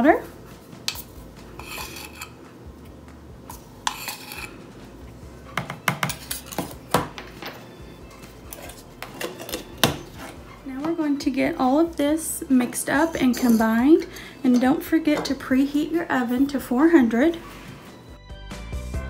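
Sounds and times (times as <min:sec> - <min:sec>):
spoon scraping in powder can: 0:00.9 - 0:02.4, 0:03.5 - 0:04.6, 0:08.2 - 0:10.5.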